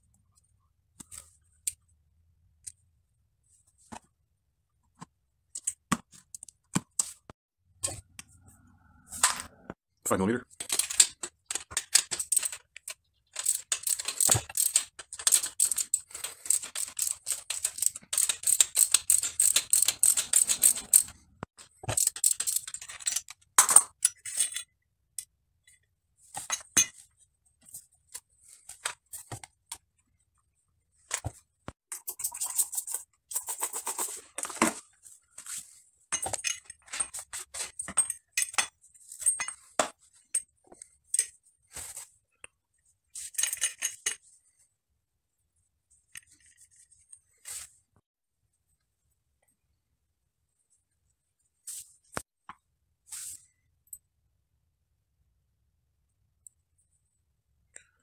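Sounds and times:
metal parts clicking and clinking: 10.6s - 24.7s, 36.1s - 41.4s, 43.2s - 44.3s.

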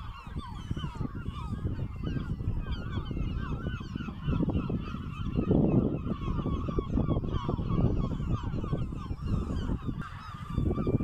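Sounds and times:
seabirds calling: 0.0s - 11.0s.

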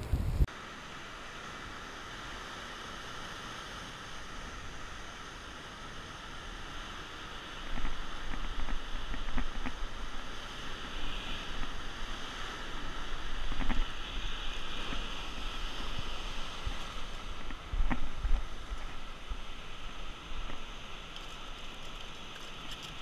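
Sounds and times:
wind buffeting microphone: 0.0s - 0.5s.

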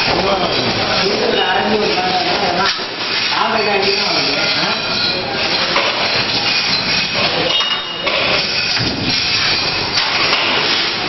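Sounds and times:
workshop noise: 0.0s - 11.0s.

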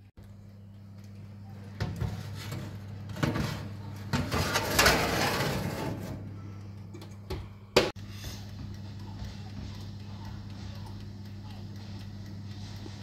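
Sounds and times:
steady low hum: 0.0s - 13.0s
metal baking tray scraping and rattling: 2.0s - 6.3s
oven door banging shut: 3.2s - 6.2s.

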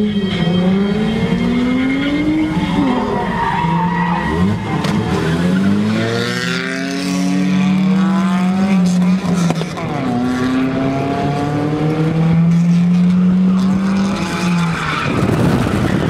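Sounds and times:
truck engine revving: 0.0s - 16.0s.

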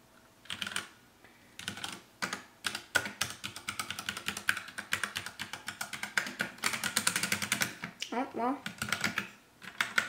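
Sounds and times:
mechanical keyboard keystrokes clacking: 1.6s - 7.9s, 8.6s - 10.0s.

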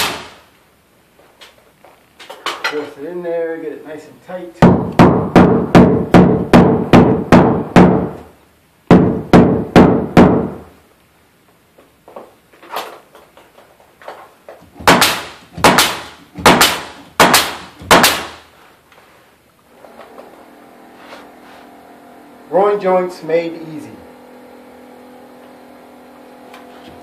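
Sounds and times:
hammer knocking wooden board: 4.6s - 8.2s, 8.9s - 10.6s.

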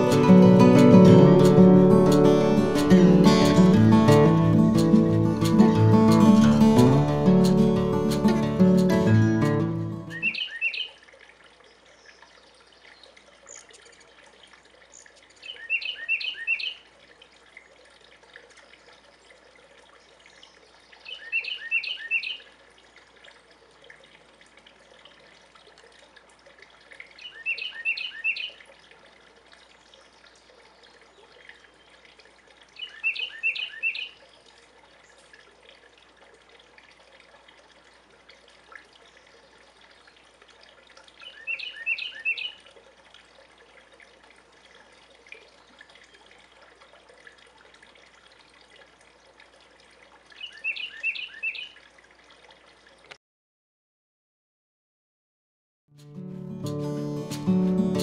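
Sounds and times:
wren singing: 10.1s - 10.8s.

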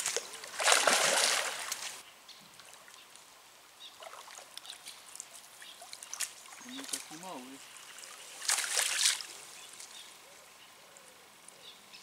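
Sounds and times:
water splashing: 0.0s - 2.0s, 4.0s - 10.0s
water trickling and dripping: 4.0s - 10.0s.

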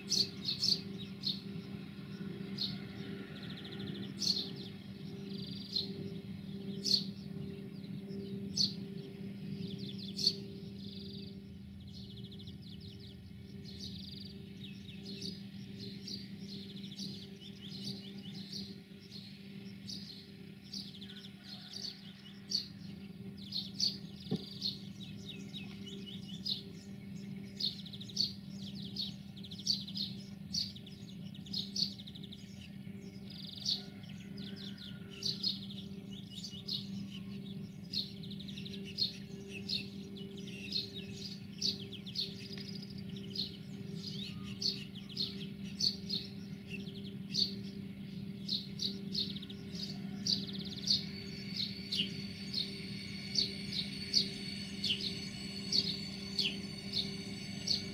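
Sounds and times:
locomotive diesel engine drone: 0.0s - 21.3s, 35.7s - 57.9s
small birds chirping: 0.0s - 57.9s.

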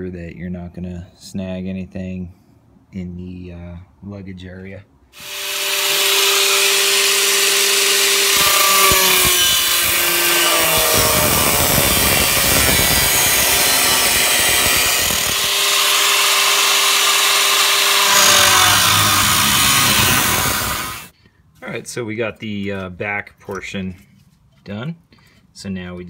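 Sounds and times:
angle grinder cutting metal: 5.2s - 21.1s.

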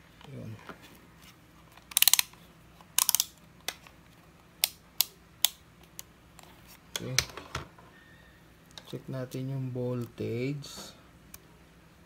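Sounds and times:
plastic clicks of multimeter: 3.0s - 3.4s.

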